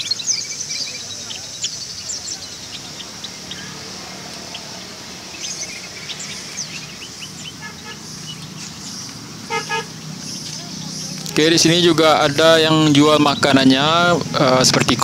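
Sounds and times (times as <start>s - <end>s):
songbirds chirping: 0.0s - 15.0s
vehicle horn beeping: 7.4s - 8.1s, 9.4s - 10.0s.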